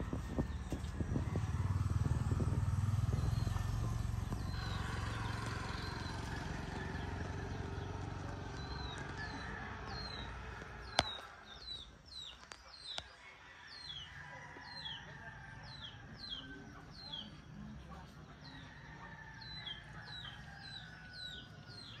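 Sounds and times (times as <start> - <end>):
passing vehicle rumble: 0.0 - 12.2
small birds chirping: 0.0 - 22.0.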